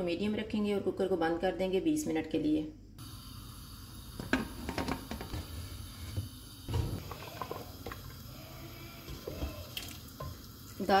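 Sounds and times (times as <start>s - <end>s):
wooden spoon stirring in pot: 7.0s - 10.8s.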